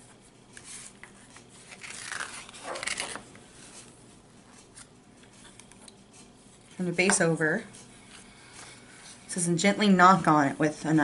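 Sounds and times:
rustling scrape: 0.5s - 5.5s.

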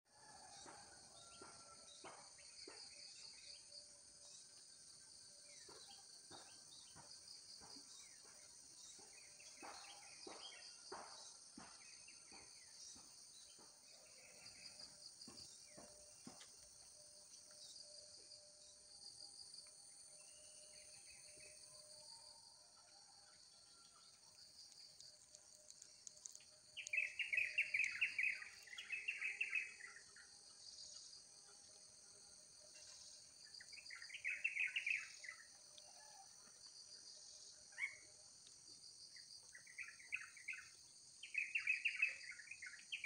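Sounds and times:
insects trilling: 2.8s - 43.0s
birds chirping: 26.2s - 29.9s.

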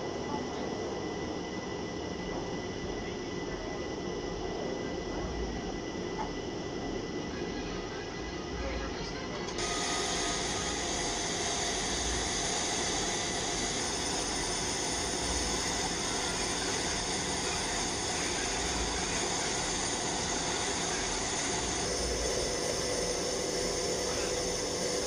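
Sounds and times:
faint whines: 0.0s - 25.0s
low whine: 0.0s - 25.0s
jet aircraft engine rushing: 9.6s - 25.0s.

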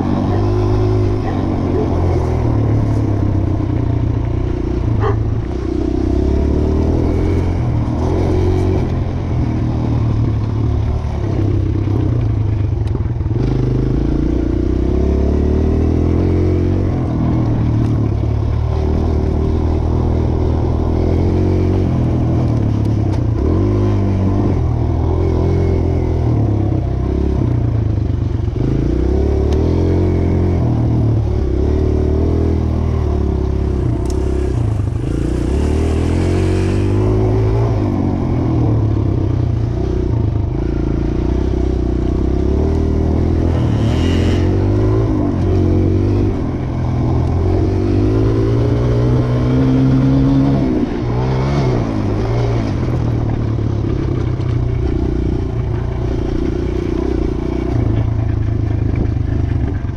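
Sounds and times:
dirt bike engine revving: 0.0s - 12.3s, 28.6s - 58.4s.

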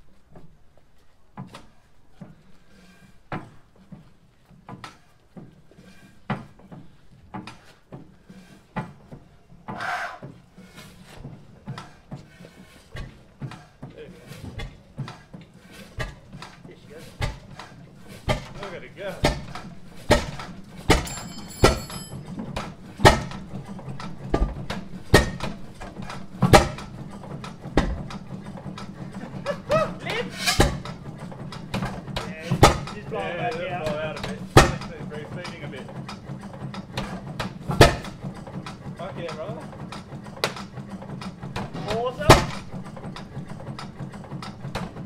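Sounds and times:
engine parts clicking and clanking: 0.0s - 45.0s
stationary engine exhaust bangs: 30.4s - 45.0s.

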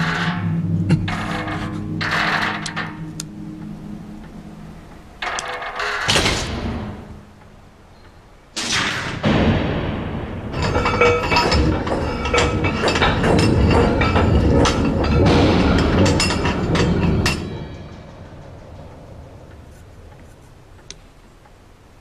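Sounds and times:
music: 0.0s - 8.2s, 9.1s - 20.5s
metallic clank: 8.6s - 19.8s.

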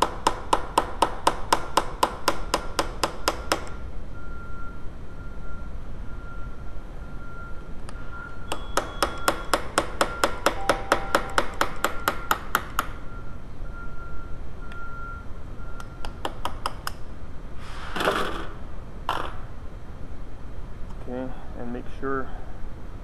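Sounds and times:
hammer tapping metal punch: 0.0s - 3.8s, 8.5s - 13.0s.

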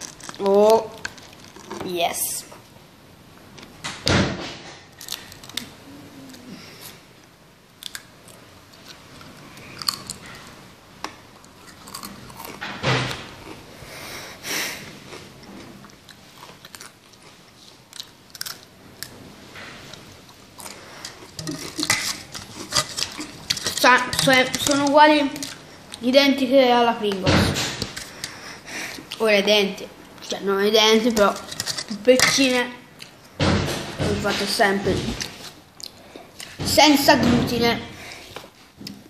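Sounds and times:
chewing potato crisps: 5.0s - 5.7s, 7.8s - 10.6s, 11.4s - 12.7s, 15.0s - 19.2s.

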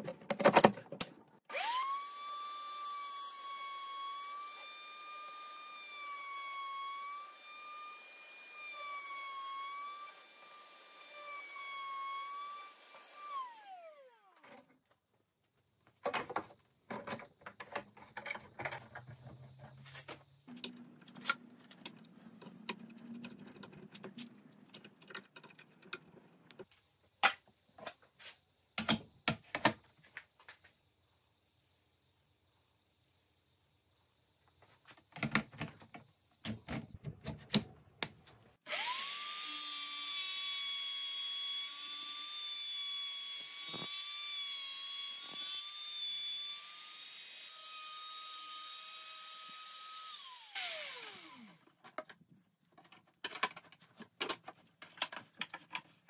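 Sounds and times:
wood router whining: 1.5s - 14.4s, 38.6s - 51.8s.

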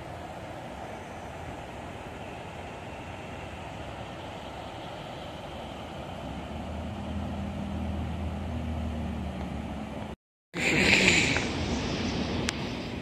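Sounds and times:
vehicle engine humming: 2.8s - 13.0s.

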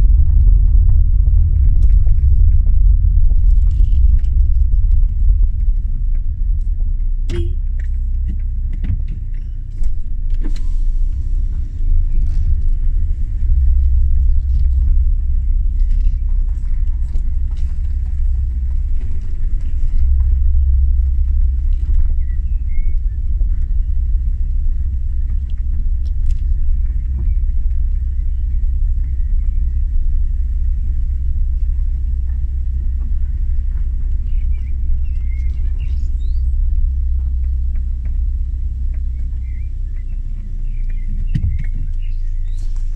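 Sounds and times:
car driving on gravel: 0.0s - 42.9s.

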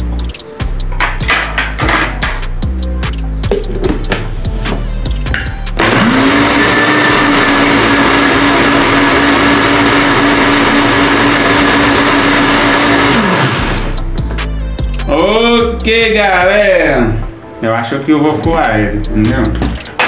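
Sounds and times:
blender motor with liquid churning: 5.8s - 14.0s.

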